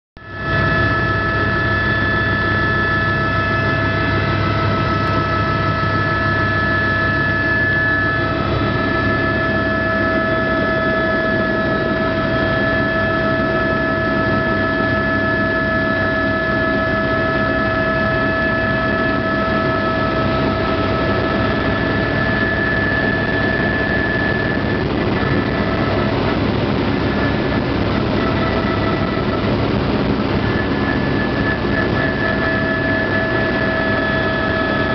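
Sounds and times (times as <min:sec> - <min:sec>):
helicopter engine and rotor drone: 0:00.2 - 0:34.9.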